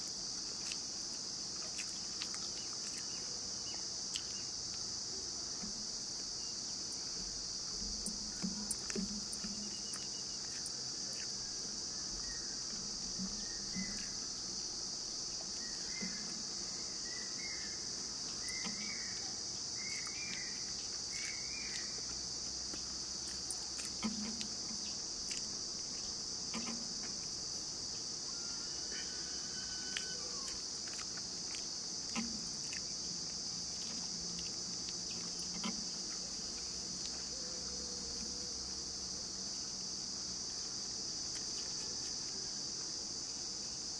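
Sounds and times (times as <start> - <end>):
high-pitched insect chorus: 0.0 - 43.9
chirps: 2.6 - 4.5, 8.6 - 10.8, 11.4 - 14.3, 15.4 - 22.0
soft thumps of eating by hand: 7.0 - 14.5, 18.2 - 27.3.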